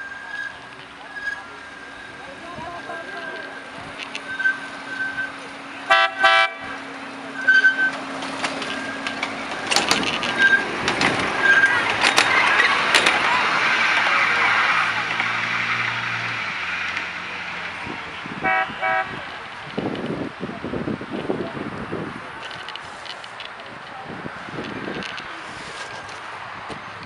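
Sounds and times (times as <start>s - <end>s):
train horn toots: 5.9s - 6.7s, 18.4s - 19.2s.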